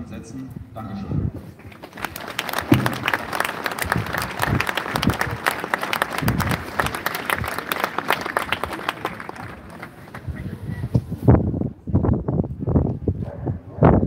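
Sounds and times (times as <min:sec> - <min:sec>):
crowd applauding: 0:01.6 - 0:10.6.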